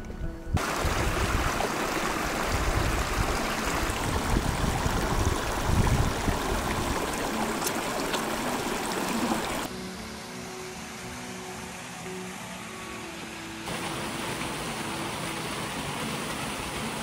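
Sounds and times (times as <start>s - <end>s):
stream running over rocks: 0.6s - 9.8s, 13.6s - 17.0s.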